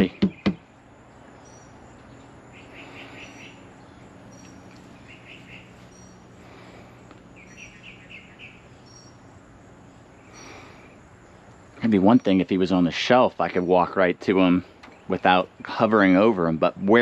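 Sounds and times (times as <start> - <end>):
thin high tweets: 0.0 - 16.6
small chirping calls: 0.0 - 16.8
faint low hum: 0.0 - 17.0.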